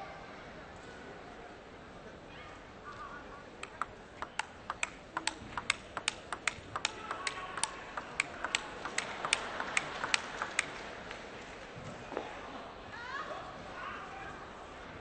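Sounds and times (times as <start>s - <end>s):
table tennis ball clicks: 3.6s - 10.8s.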